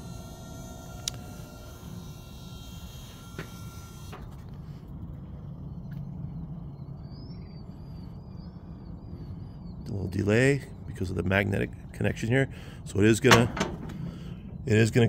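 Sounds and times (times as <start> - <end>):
gate pump humming: 0.0 - 5.3, 12.5 - 15.0.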